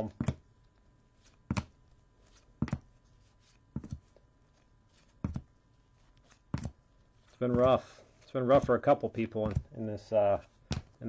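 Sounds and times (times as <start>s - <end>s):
trading cards tapping on stack: 9.4s - 9.7s, 10.6s - 11.0s.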